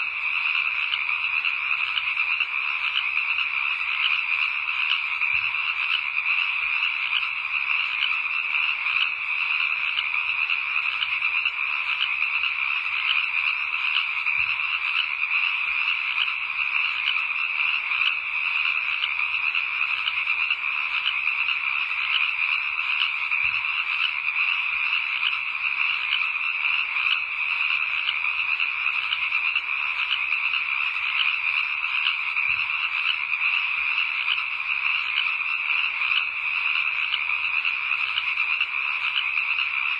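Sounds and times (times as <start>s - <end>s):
frogs trilling: 0.0s - 39.9s.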